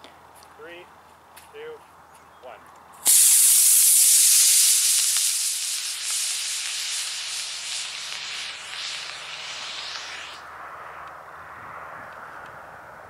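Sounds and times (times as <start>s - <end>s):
rocket motor hissing: 3.0s - 10.5s.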